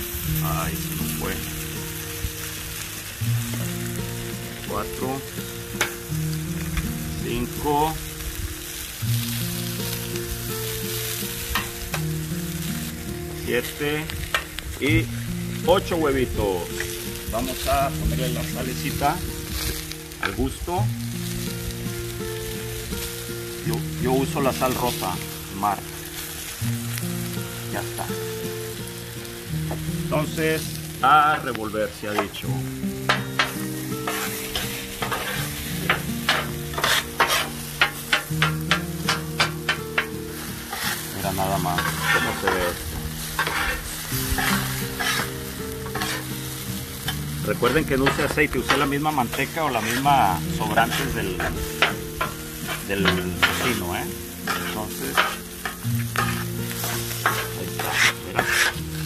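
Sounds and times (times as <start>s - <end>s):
background music: 0.0s - 59.0s
eggs sizzling on a griddle: 0.0s - 59.0s
metal spatula scraping griddle: 32.0s - 59.0s.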